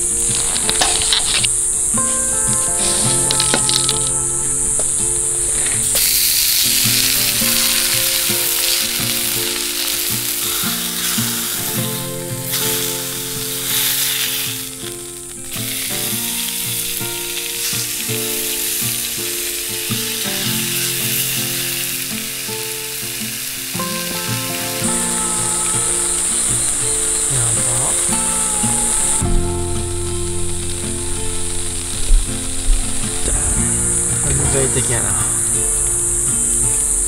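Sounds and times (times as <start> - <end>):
soft background music: 0.0 - 37.0
steaks sizzling in a frying pan: 5.6 - 29.6.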